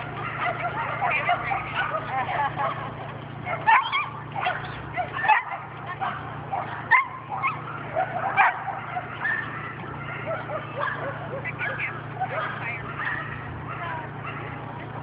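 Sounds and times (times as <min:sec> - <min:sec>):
dogs barking and yipping: 0:00.0 - 0:15.0.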